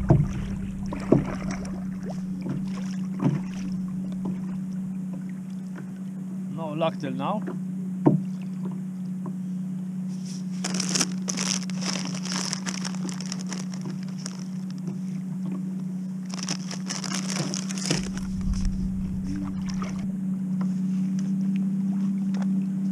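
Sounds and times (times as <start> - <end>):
steady low hum: 0.0 - 22.9
plastic packet crinkling: 10.6 - 14.9, 16.3 - 18.8.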